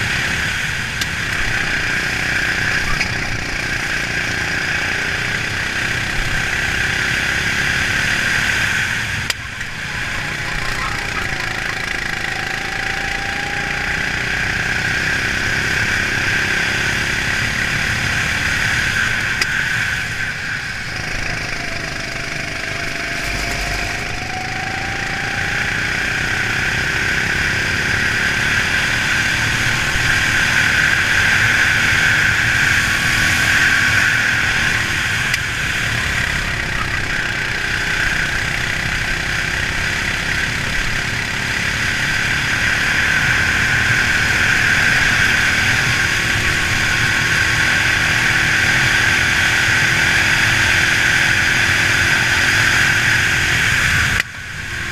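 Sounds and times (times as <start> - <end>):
kart engine running hard: 0.0 - 54.9.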